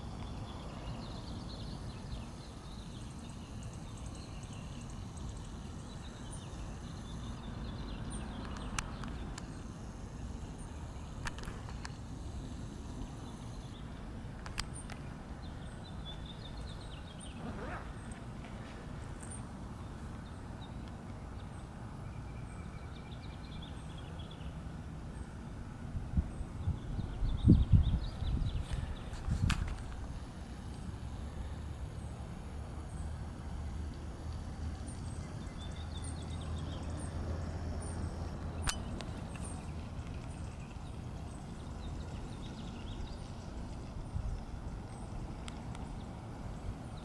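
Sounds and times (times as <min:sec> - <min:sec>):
faint birds chirping: 0:00.0 - 0:47.0
wind rumble on microphone: 0:25.8 - 0:30.3, 0:38.4 - 0:47.0.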